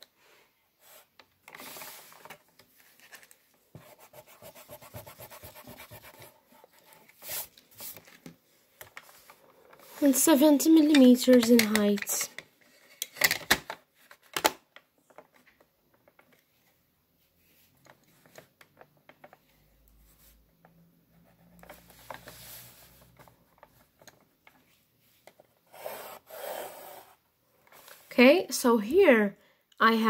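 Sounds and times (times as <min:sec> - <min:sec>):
pencil scratching on paper: 0:03.8 - 0:07.5, 0:25.7 - 0:27.2
rubbing sweep on paper: 0:03.8 - 0:08.0.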